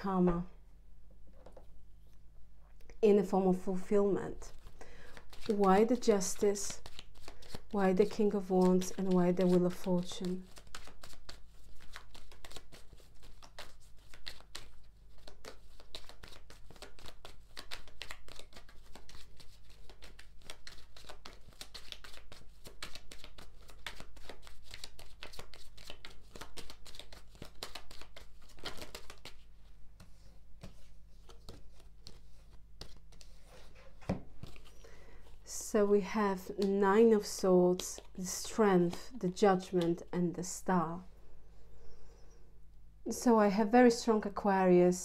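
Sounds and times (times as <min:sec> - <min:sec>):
cards being shuffled: 0:04.4 - 0:35.5, 0:36.5 - 0:40.1.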